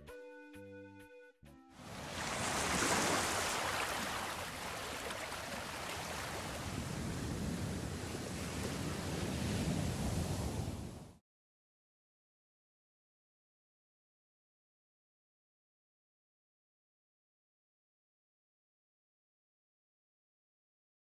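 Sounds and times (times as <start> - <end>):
ocean waves washing on shore: 1.8 - 11.2.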